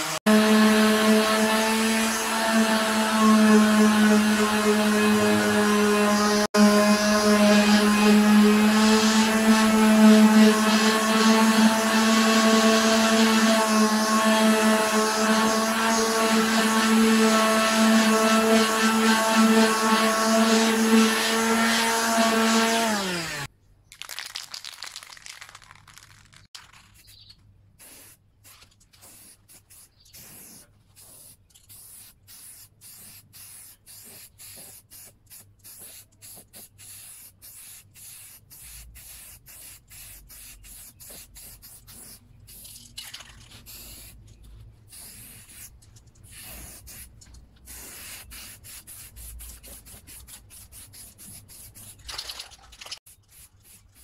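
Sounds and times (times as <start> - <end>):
electric sander humming: 0.0 - 23.5
spray paint can hissing: 24.0 - 44.3, 44.9 - 54.0.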